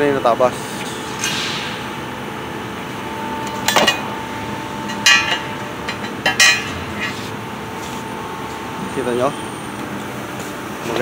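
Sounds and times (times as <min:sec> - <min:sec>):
steady machine hum: 0:00.0 - 0:11.0
steel pieces clinking on metal: 0:04.8 - 0:07.2.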